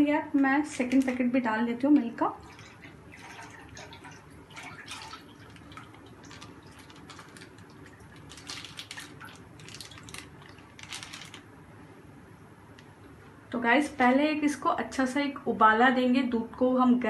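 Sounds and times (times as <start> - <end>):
milk dripping: 2.4 - 11.4
milk pouring into a pan: 2.4 - 11.4
plastic pouch crinkling: 4.9 - 11.5.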